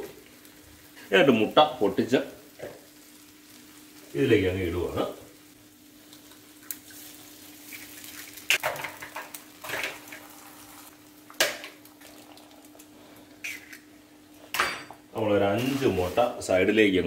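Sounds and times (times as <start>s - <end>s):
egg splashing and sizzling in oil: 2.3s - 4.2s, 5.2s - 14.8s.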